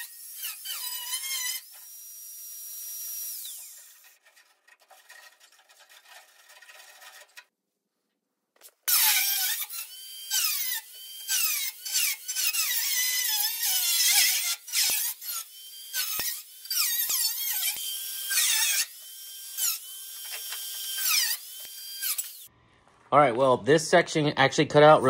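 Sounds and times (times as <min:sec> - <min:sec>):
power cutter slicing sheet metal: 0:02.9 - 0:07.4, 0:08.9 - 0:22.5.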